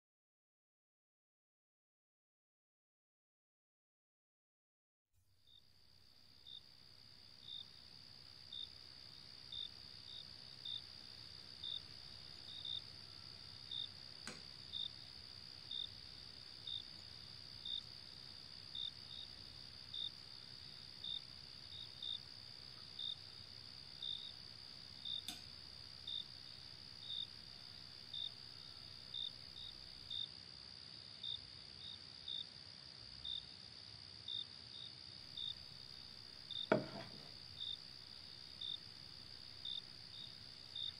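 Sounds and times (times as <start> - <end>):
insect chirps: 5.4 - 40.9
insects trilling: 6.0 - 40.9.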